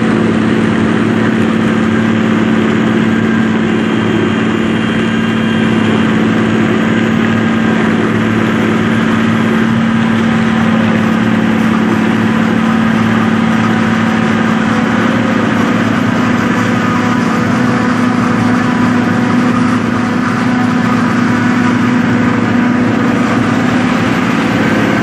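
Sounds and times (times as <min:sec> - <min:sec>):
forage harvester engine droning: 0:00.0 - 0:25.0.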